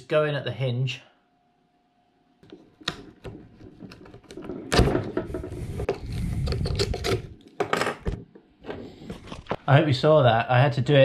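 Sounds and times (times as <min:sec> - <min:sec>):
camera handling rumble: 0:03.1 - 0:07.6.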